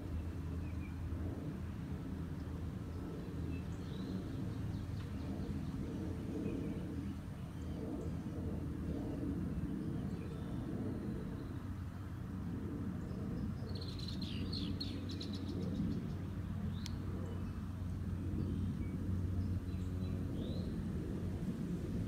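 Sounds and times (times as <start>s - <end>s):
steady low rumble: 0.0s - 22.0s
bird chirp: 13.0s - 20.8s.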